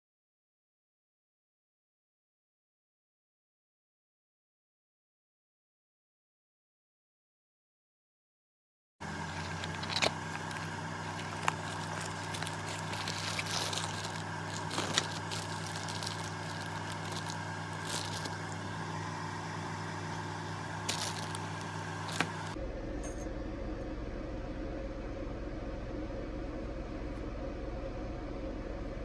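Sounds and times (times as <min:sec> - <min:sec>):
plastic bag crinkling: 0:09.0 - 0:19.4, 0:20.0 - 0:22.6
steady background hum: 0:09.0 - 0:29.0.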